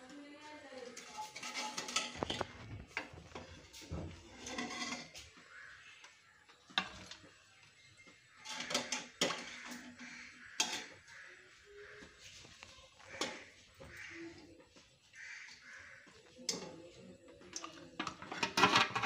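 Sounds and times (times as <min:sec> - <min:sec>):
clinks on a steel plate: 0:01.0 - 0:02.6.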